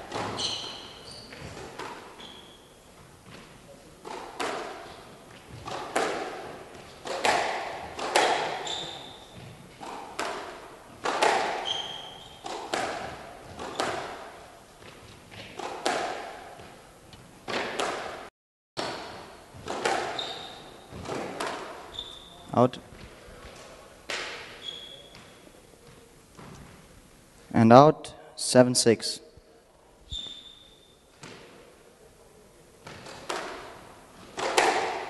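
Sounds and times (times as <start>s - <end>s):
shoes squeaking on wooden floor: 0.0s - 3.6s, 8.2s - 10.2s, 11.2s - 14.2s, 18.9s - 23.8s, 24.4s - 26.9s, 30.1s - 31.1s
squash ball impacts echoing: 0.0s - 26.9s, 31.1s - 31.7s, 32.8s - 35.0s.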